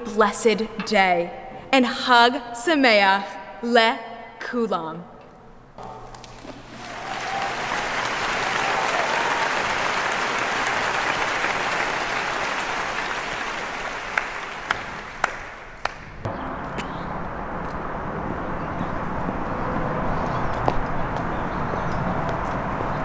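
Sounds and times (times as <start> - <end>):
crowd applauding: 6.2 - 16.1.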